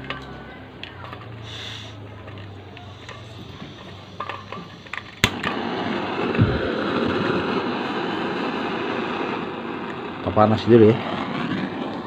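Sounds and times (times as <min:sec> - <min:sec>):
torch igniter clicks: 0:00.0 - 0:05.7
torch flame hissing: 0:01.3 - 0:12.0.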